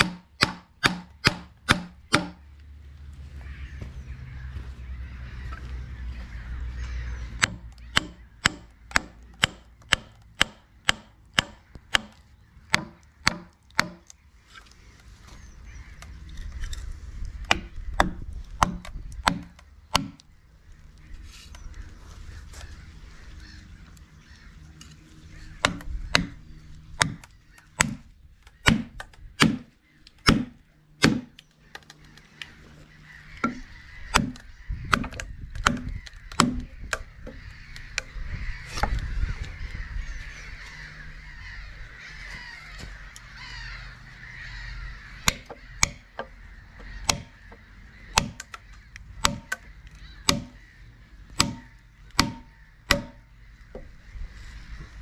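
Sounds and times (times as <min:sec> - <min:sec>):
hammer striking wooden wedges: 0:00.0 - 0:02.4, 0:07.4 - 0:14.1, 0:17.5 - 0:20.2, 0:25.6 - 0:26.4, 0:27.0 - 0:28.0, 0:28.6 - 0:31.3, 0:33.4 - 0:37.0, 0:45.2 - 0:46.3, 0:47.0 - 0:47.3, 0:48.2 - 0:48.6, 0:49.2 - 0:50.6, 0:51.4 - 0:53.2.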